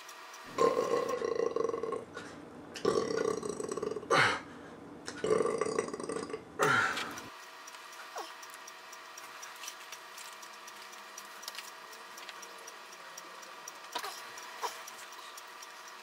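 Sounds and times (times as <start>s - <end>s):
man belching: 0.5s - 2.2s, 2.8s - 4.4s, 5.2s - 6.8s.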